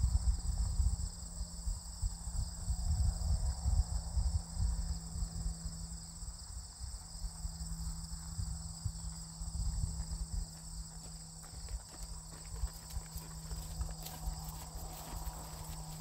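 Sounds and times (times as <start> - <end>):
horse hooves on turf: 8.1 - 16.0.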